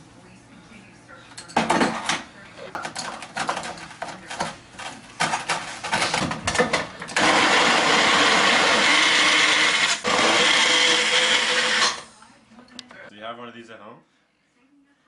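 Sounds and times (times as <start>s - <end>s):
blender motor running: 7.2s - 12.1s.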